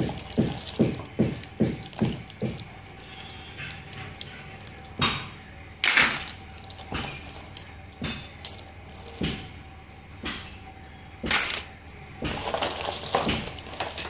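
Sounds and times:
slate pencils clattering: 0.0 - 9.4, 11.2 - 14.0.

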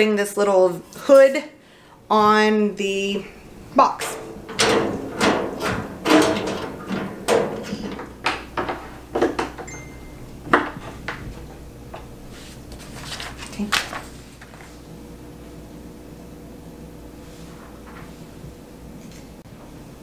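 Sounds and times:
panels knocking and rattling: 3.6 - 9.7, 10.5 - 11.6.

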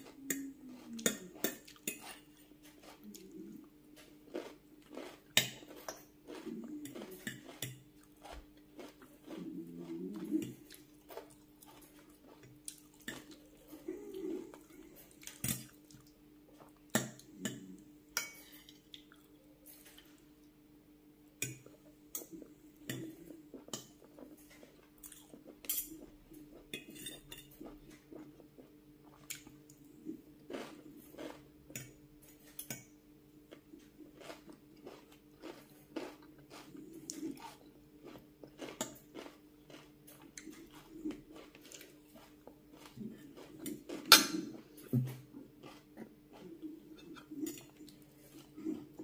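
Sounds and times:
chewing: 0.0 - 17.8, 21.5 - 32.9, 33.5 - 49.0
low steady hum: 0.0 - 49.0
cutlery clinking on glass bowl: 26.8 - 27.6.

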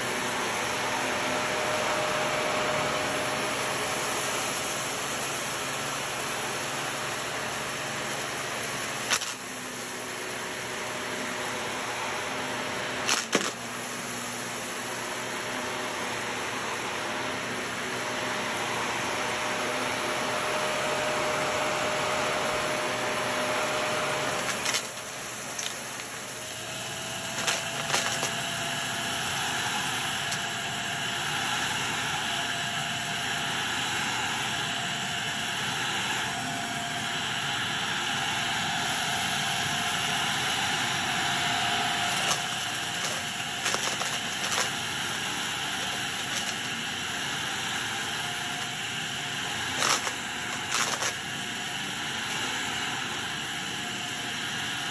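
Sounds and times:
vacuum cleaner running: 0.0 - 54.9
grit rattling up vacuum nozzle: 24.3 - 26.5, 27.3 - 28.5, 42.0 - 48.8, 49.4 - 51.4.

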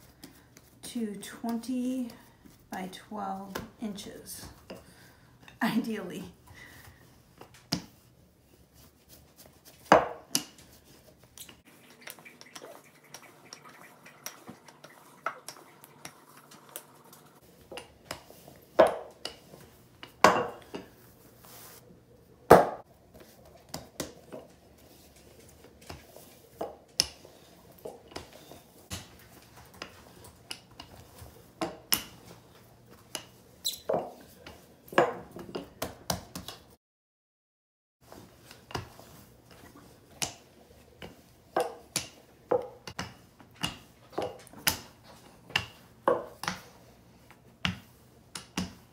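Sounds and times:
rolling pin rolling dough: 7.5 - 21.8.

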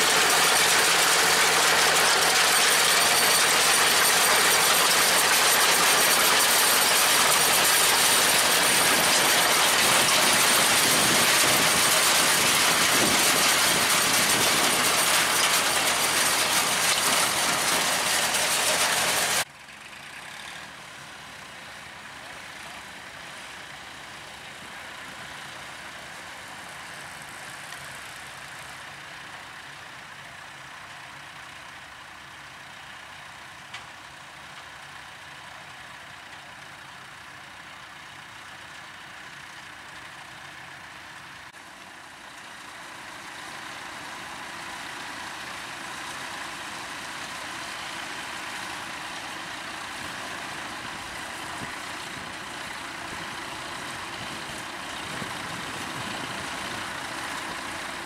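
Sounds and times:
hiss of field machinery: 0.0 - 19.5, 39.2 - 58.0
tractor engine running: 0.0 - 21.6, 23.2 - 58.0.

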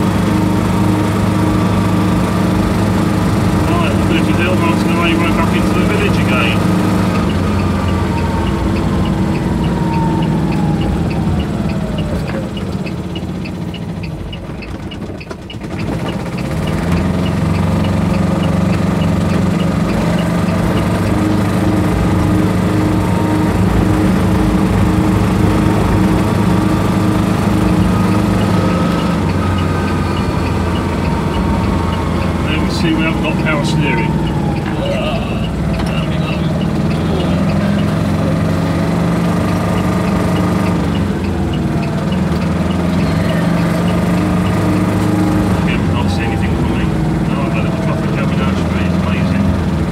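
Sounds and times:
small diesel engine running: 0.0 - 49.9
light regular ticking: 3.2 - 45.8.

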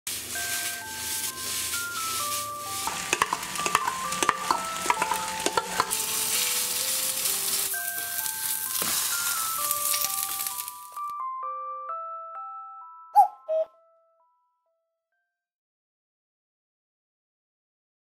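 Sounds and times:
food sizzling in frying pan: 0.1 - 11.1
soft melody: 0.1 - 15.3
utensil scraping pan: 0.2 - 7.7.

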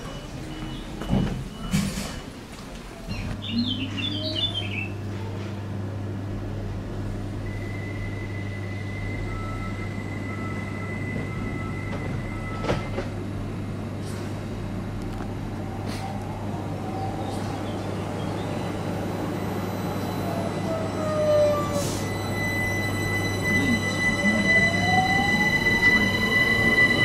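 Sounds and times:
train low hum: 0.0 - 27.0
high steady tone: 18.9 - 27.0.

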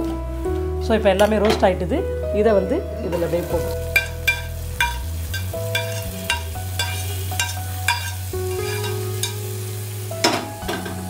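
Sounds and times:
hot ghee sizzling: 3.1 - 11.0.

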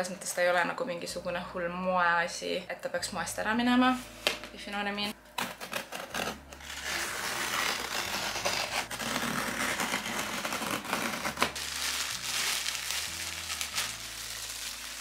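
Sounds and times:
plastic bag crinkling: 11.5 - 15.0.

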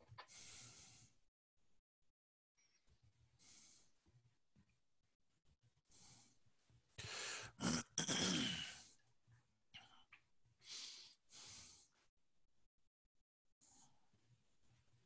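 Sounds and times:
short breaths: 0.2 - 1.2, 7.0 - 7.6
man coughing: 7.6 - 8.8.

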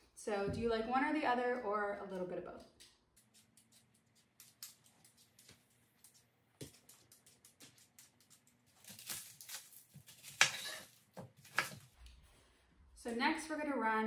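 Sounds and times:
knife cutting onion: 7.2 - 12.0
vegetable peeler scraping: 8.8 - 11.8.

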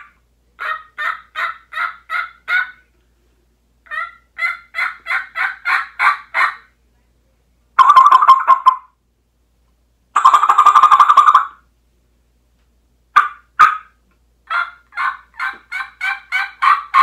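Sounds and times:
rattling turkey gobble call: 0.0 - 2.9, 3.8 - 6.7, 7.8 - 9.0, 10.2 - 11.7, 13.2 - 17.0
turkey mouth call notes: 7.8 - 8.9, 10.2 - 11.6.

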